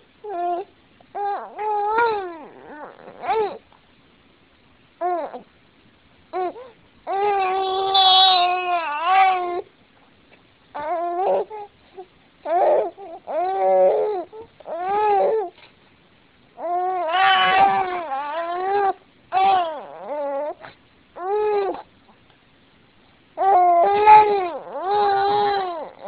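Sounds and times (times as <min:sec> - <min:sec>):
baby crying: 0:00.3 - 0:03.6, 0:06.4 - 0:09.6, 0:10.8 - 0:11.7, 0:12.4 - 0:15.6, 0:16.6 - 0:21.9, 0:23.4 - 0:26.0.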